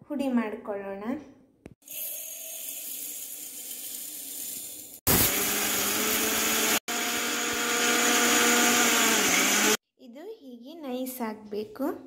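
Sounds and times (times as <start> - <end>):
electric mixer grinder running: 5.1 - 9.8.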